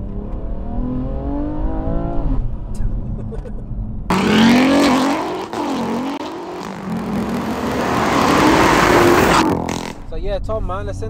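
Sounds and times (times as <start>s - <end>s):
car engine accelerating hard: 4.1s - 10.1s.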